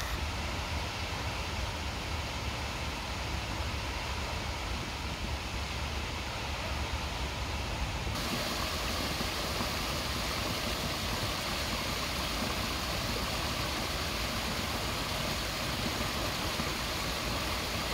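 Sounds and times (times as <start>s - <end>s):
waterfall splashing into pond: 8.1s - 17.9s.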